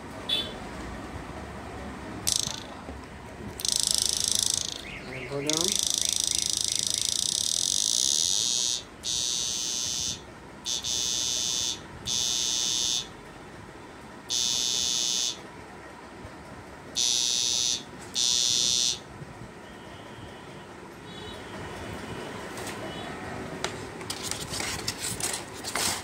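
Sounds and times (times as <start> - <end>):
inverter buzzing with high whine: 3.6 - 13.2, 14.3 - 15.4, 17.0 - 19.1.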